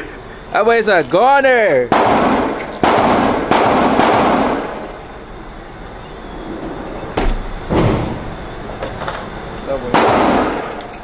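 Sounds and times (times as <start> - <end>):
gunshots echoing indoors: 1.9 - 5.0, 9.9 - 10.8.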